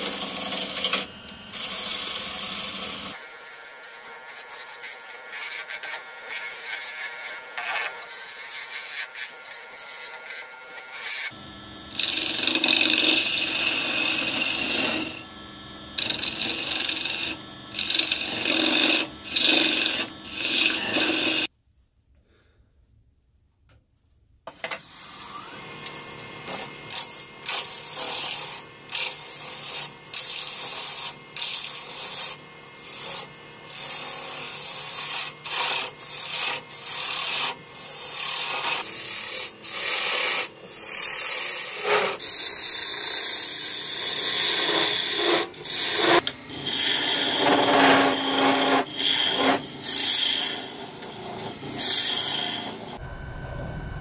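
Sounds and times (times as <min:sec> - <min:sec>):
gouge scraping spinning wood: 0:00.0 - 0:15.2, 0:16.0 - 0:21.5, 0:26.2 - 0:53.0.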